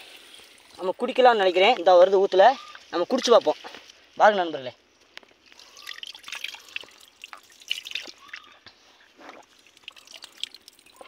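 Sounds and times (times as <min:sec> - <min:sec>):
small splashes and plinking drops: 0:05.4 - 0:08.6, 0:09.3 - 0:11.0
water dripping from hands: 0:05.4 - 0:08.6, 0:09.4 - 0:11.0.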